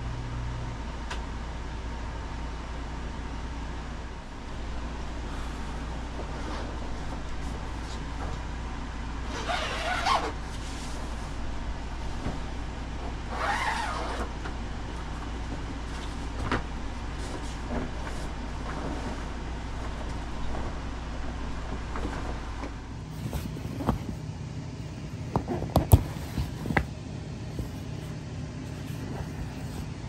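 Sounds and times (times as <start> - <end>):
steady low hum: 0.0 - 30.0
fabric rustling: 21.5 - 24.2, 27.5 - 30.0.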